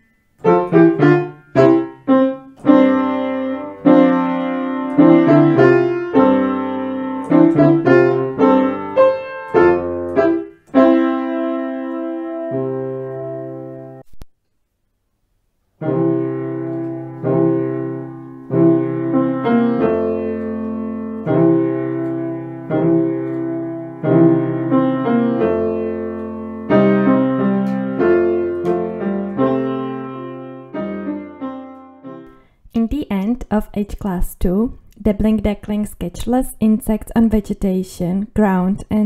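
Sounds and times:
piano music: 0:00.0 - 0:14.1, 0:15.8 - 0:32.4.

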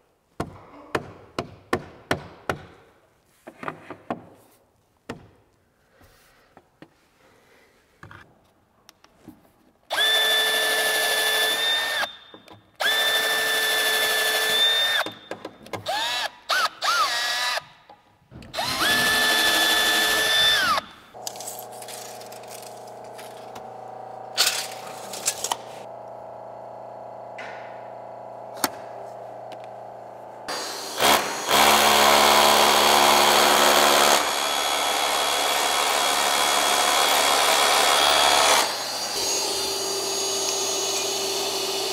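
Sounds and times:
cordless drill running into wood: 0:09.9 - 0:12.2, 0:12.8 - 0:15.1, 0:18.5 - 0:20.8, 0:30.5 - 0:41.9.

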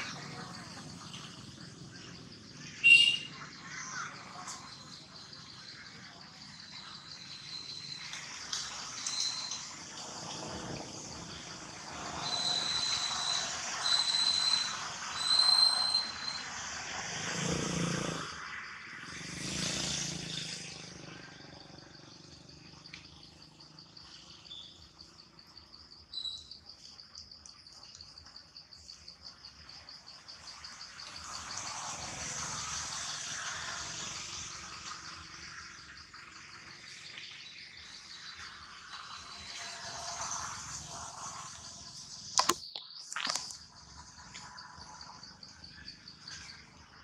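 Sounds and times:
insects trilling: 0:00.0 - 0:47.0
short high chirps: 0:02.8 - 0:03.3.

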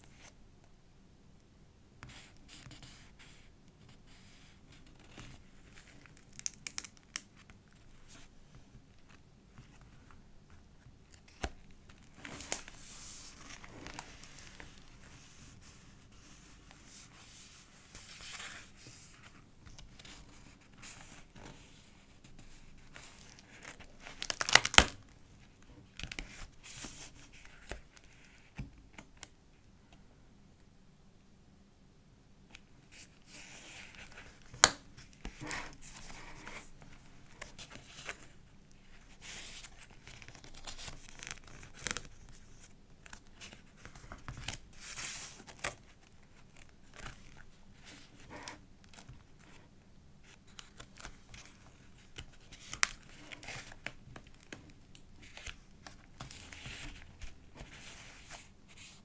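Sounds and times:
paper pages rustling: 0:04.9 - 0:08.3, 0:09.0 - 0:25.0, 0:32.9 - 0:49.6, 0:50.2 - 0:59.0.

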